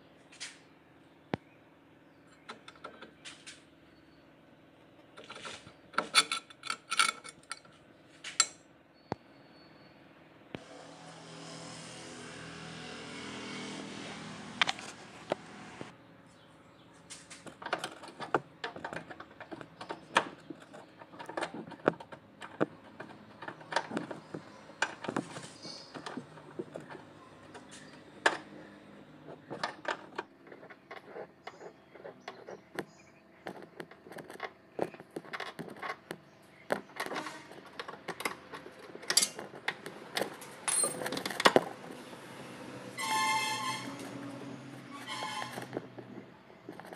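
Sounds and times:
spanner clinking on metal: 0:05.2 - 0:08.6, 0:37.8 - 0:41.7.

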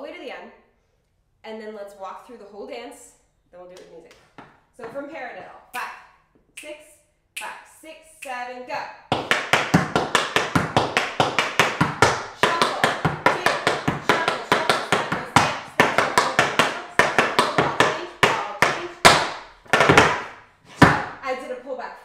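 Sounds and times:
tap shoes on wooden board: 0:09.1 - 0:21.2.

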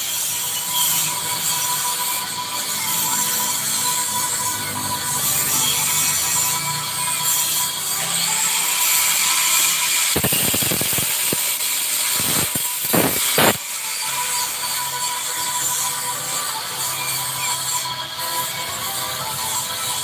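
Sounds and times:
steady hiss: 0:10.1 - 0:13.7.

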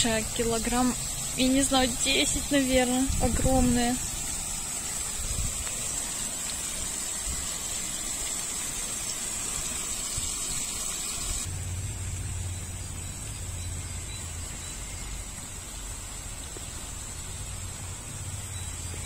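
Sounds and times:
flowing water rushing: 0:00.0 - 0:19.0
low steady hum: 0:11.4 - 0:19.0.

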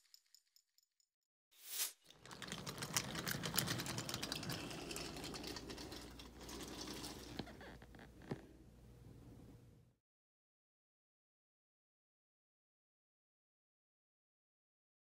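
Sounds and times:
wooden toy train rattling on track: 0:02.1 - 0:07.8.

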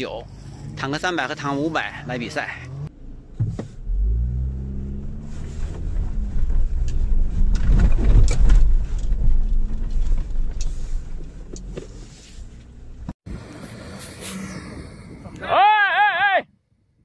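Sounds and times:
suv engine revving hard: 0:00.4 - 0:02.9, 0:03.8 - 0:06.4.

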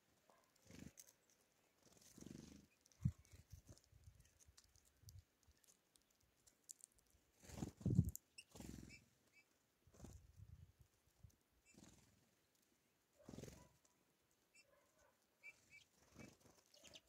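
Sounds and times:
bird wings fluttering: 0:01.8 - 0:03.9, 0:07.4 - 0:09.0, 0:11.7 - 0:12.2, 0:13.3 - 0:13.8, 0:16.0 - 0:16.9.

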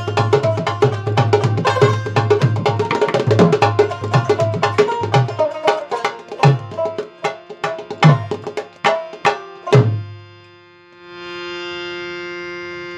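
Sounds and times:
drum played in quick rhythm: 0:00.0 - 0:10.1
steady held droning tone: 0:03.6 - 0:12.9.

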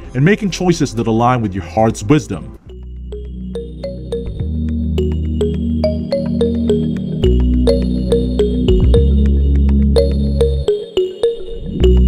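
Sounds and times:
low synth chord: 0:02.7 - 0:10.7
plucked synth notes: 0:02.7 - 0:12.0.

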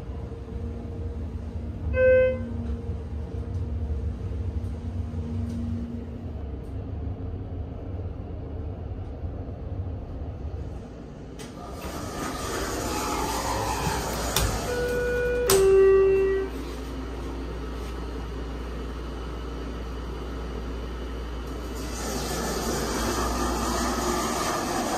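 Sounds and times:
elevator doors opening: 0:00.0 - 0:06.9, 0:11.2 - 0:17.0, 0:21.5 - 0:24.9
elevator car humming: 0:00.0 - 0:24.9.

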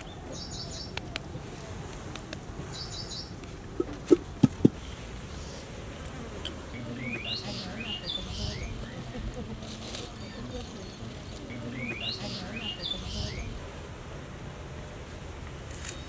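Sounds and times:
faint clicks: 0:00.8 - 0:02.5
loud low-pitched thuds: 0:03.8 - 0:04.8.

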